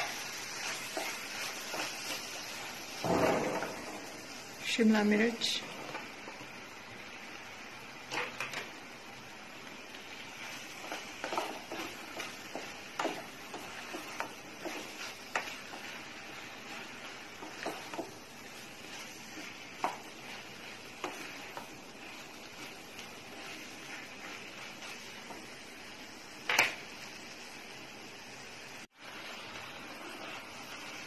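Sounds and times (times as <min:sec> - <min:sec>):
spatula scraping and knocking pan: 0:00.0 - 0:04.4, 0:10.4 - 0:25.8
vegetables sizzling in a pan: 0:00.0 - 0:31.0.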